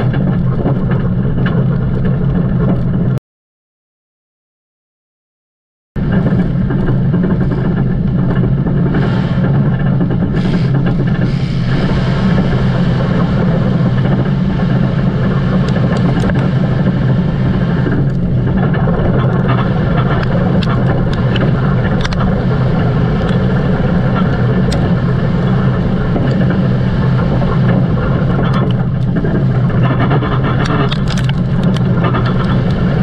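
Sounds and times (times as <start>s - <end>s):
vehicle engine running loudly: 0.0s - 3.2s, 6.0s - 33.0s.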